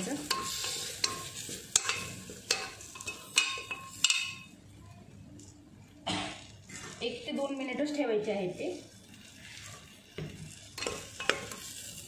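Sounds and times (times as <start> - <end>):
frying sizzle: 0.0 - 12.0.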